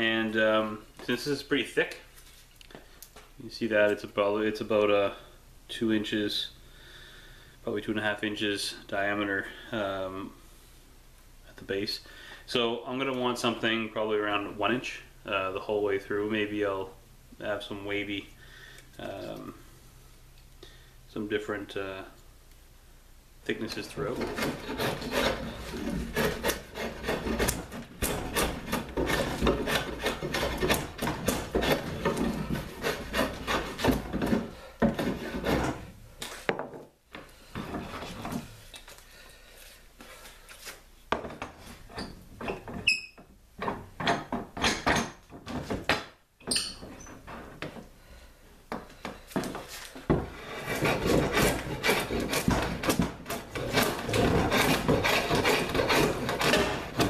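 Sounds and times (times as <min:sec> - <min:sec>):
drawknife scraping wood: 0:23.8 - 0:35.9, 0:49.4 - 0:57.0.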